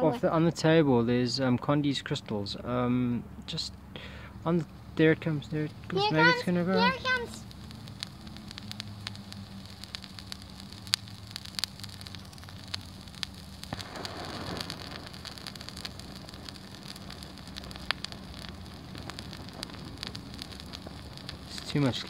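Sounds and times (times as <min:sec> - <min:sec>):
chemical mixture crackling and popping: 0:04.1 - 0:22.0
hissing flare: 0:04.8 - 0:22.0.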